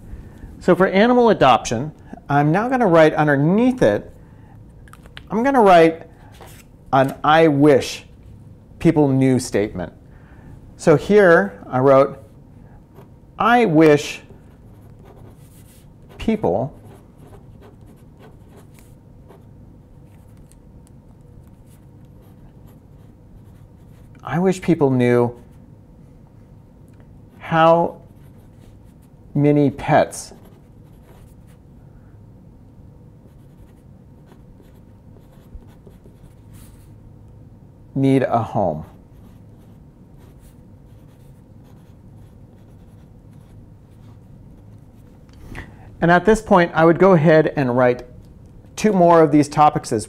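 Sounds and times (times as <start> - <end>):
faint low room hum: 0.0 - 50.0
pen scratching on paper: 14.7 - 19.4, 33.3 - 36.8, 38.8 - 45.1.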